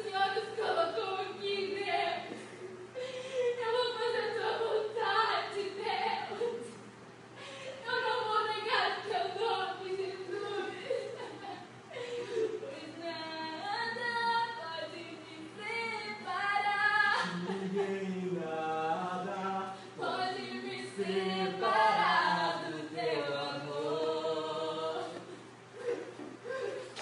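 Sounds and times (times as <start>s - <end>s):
voices singing without instruments: 7.8s - 27.0s.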